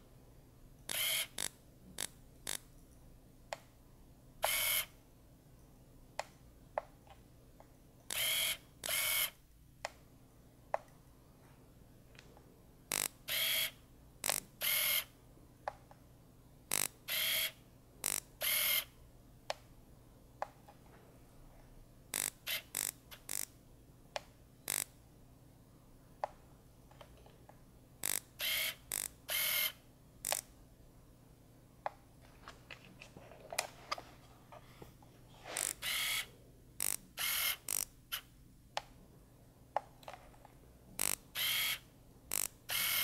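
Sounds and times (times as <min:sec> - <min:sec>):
camera shutter clacking: 0:35.6 - 0:36.2, 0:36.8 - 0:37.8, 0:41.0 - 0:43.0.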